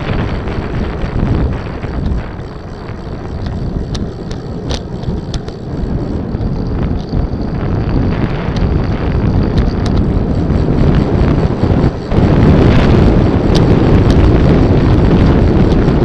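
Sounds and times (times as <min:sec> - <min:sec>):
sharp ticks: 0:00.0 - 0:16.0
wind buffeting microphone: 0:00.0 - 0:16.0.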